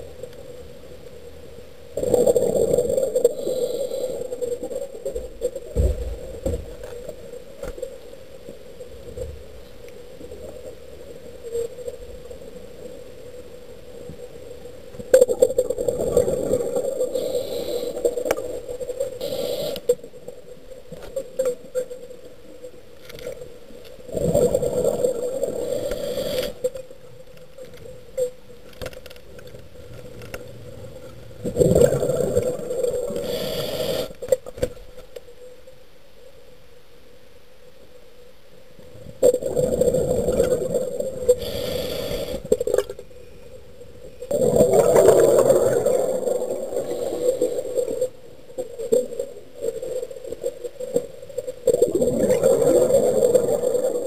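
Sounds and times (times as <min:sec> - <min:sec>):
diver breathing underwater: 0:16.9 - 0:18.5, 0:19.2 - 0:19.9, 0:24.2 - 0:26.6, 0:31.8 - 0:34.2, 0:41.2 - 0:42.7.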